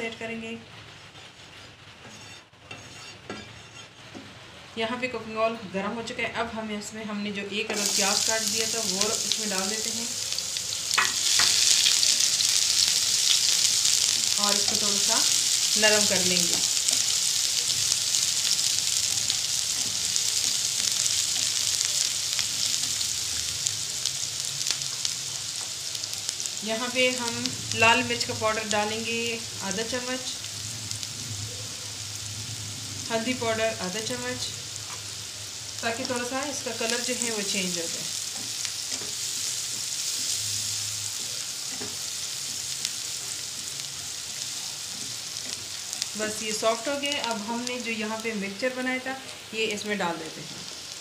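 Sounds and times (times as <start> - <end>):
onion sizzling in frying pan: 0.0 - 51.0
spatula stirring in pan: 1.0 - 4.2, 38.0 - 46.2.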